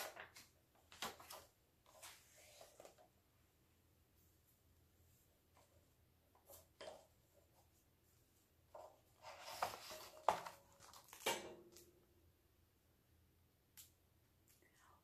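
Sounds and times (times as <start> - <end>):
book pages rustling: 0.0 - 3.2, 8.8 - 11.9.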